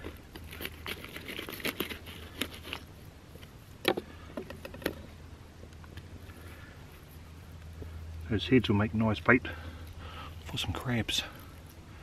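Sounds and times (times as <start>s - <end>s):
fish being scraped and cut: 0.4s - 2.9s.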